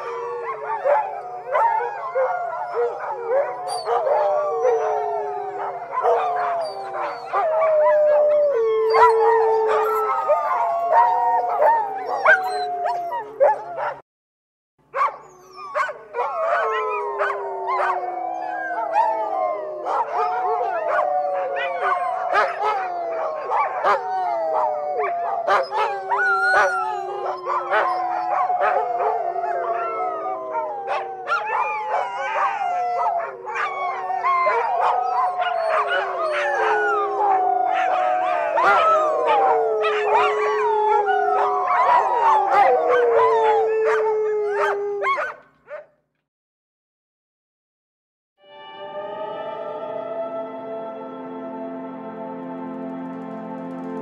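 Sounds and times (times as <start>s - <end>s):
dogs howling: 0.0s - 14.0s, 15.0s - 45.8s
dogs yipping: 0.8s - 4.9s, 15.0s - 18.0s, 19.9s - 24.0s, 25.0s - 29.1s, 30.8s - 36.9s, 41.4s - 45.8s.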